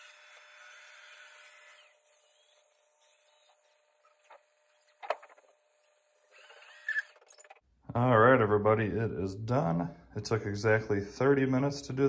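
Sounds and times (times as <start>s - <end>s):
robot vacuum whirring: 1.6s - 7.6s.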